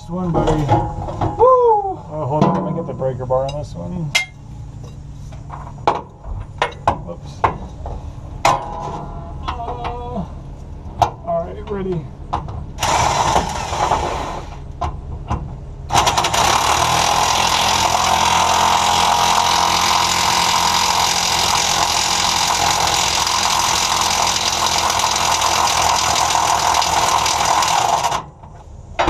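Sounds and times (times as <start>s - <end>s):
impact wrench hammering: 15.9s - 28.2s.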